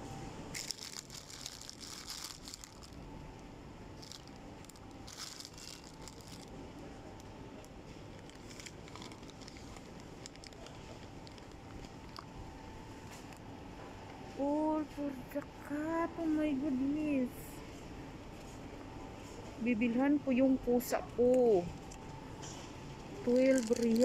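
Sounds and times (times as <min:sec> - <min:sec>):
faint steady hum: 0:00.0 - 0:24.0
plastic pouches crinkling: 0:00.5 - 0:03.1, 0:04.0 - 0:07.3, 0:08.0 - 0:12.3, 0:23.2 - 0:24.0.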